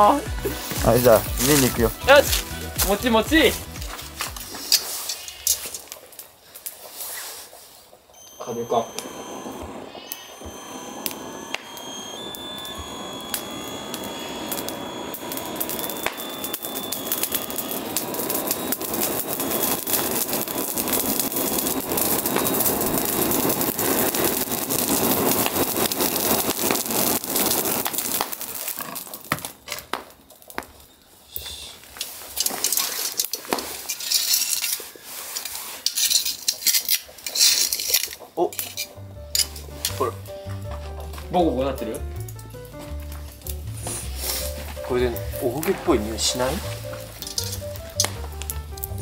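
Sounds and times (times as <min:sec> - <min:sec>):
fire crackling: 0:00.0 - 0:49.0
blower rushing air: 0:08.6 - 0:28.2, 0:43.6 - 0:49.0.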